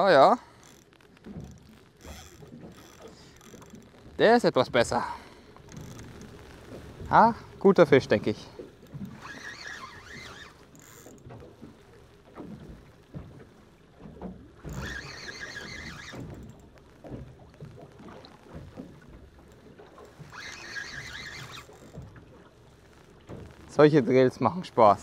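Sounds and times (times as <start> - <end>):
spinning reel whirring: 0.0 - 4.4, 5.6 - 6.8, 8.2 - 11.3, 14.6 - 17.2, 18.4 - 22.1
low water and boat noise: 0.0 - 25.0.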